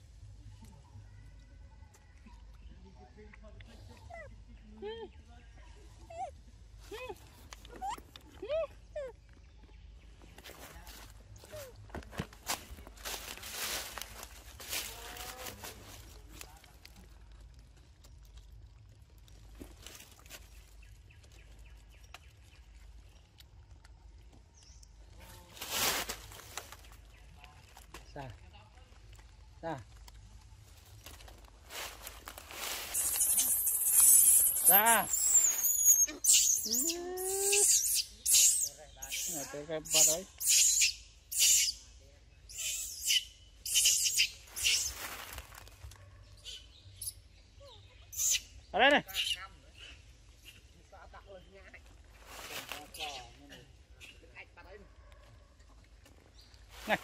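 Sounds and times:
quiet forest ambience: 0.0s - 57.0s
person making hissing calls: 33.0s - 41.8s.

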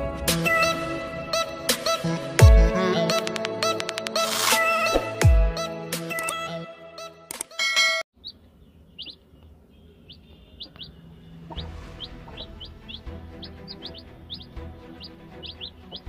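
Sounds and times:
chicks peeping: 8.2s - 16.0s
low rumble: 10.8s - 15.4s.

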